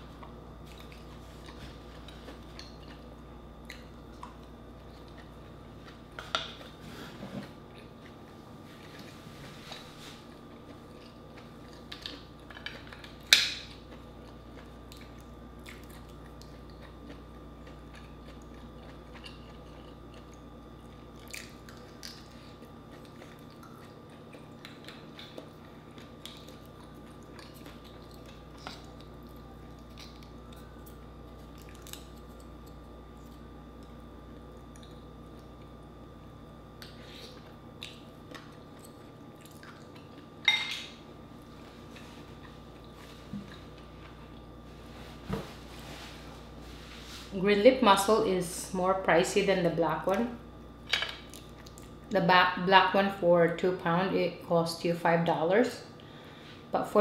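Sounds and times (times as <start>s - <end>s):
faint steady hum: 0.0s - 57.0s
person chewing: 0.2s - 6.8s, 7.4s - 35.9s, 36.8s - 45.3s, 51.2s - 52.1s.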